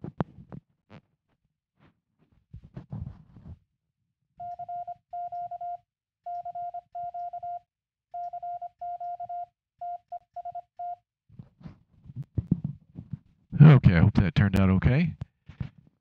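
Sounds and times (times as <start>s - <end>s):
morse code tone: 4.4s - 7.6s, 8.2s - 11.0s.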